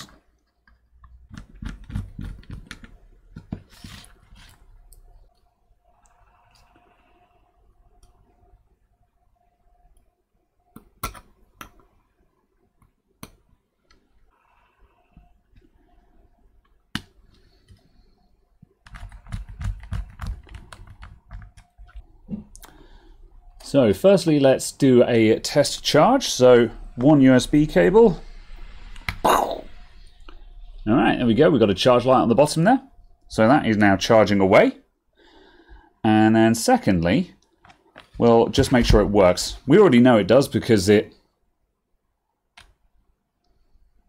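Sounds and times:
soft scraping and fiddling: 3.5s - 4.9s.

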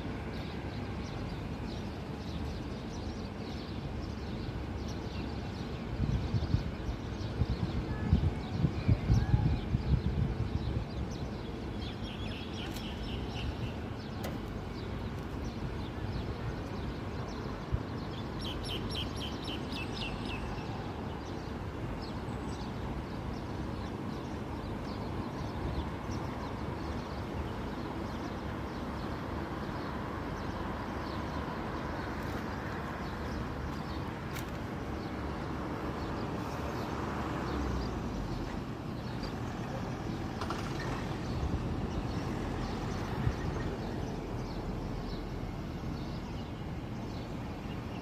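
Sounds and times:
birds chirping: 0.0s - 48.0s
distant road traffic hum: 0.0s - 48.0s.

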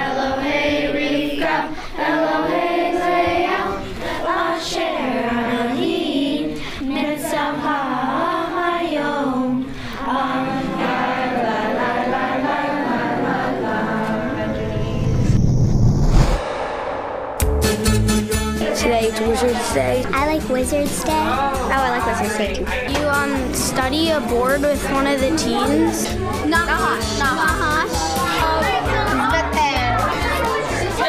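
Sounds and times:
children singing in chorus: 0.0s - 14.6s.

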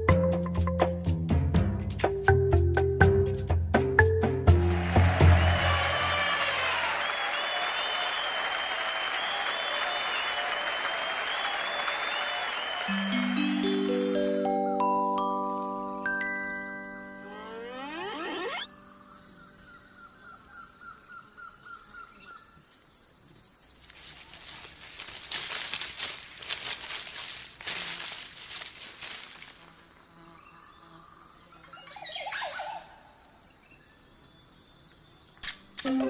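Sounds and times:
sharp clicks: 35.4s - 36.0s.

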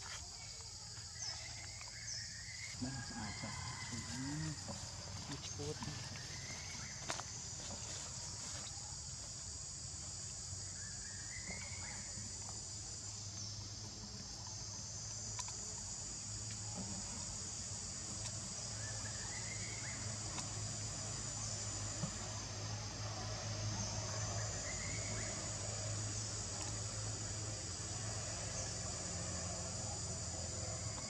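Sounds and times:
insect chorus buzzing: 0.0s - 31.0s.

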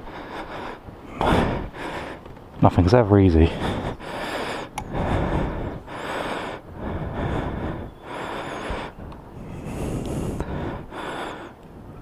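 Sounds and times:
rush of riding wind: 0.0s - 12.0s.

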